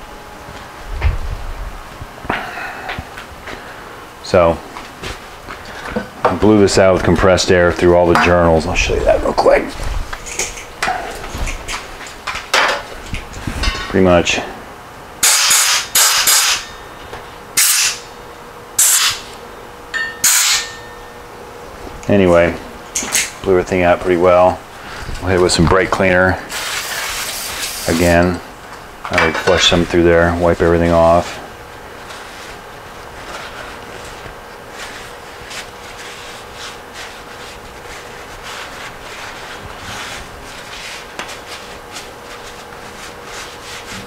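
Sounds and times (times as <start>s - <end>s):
faint steady hum: 0.0s - 44.0s
cloth rubbing on metal: 32.0s - 44.0s.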